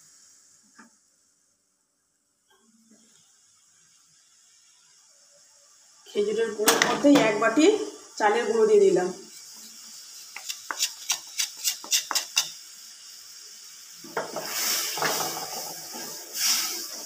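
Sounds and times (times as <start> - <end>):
spatula scraping while stirring: 9.3 - 12.6.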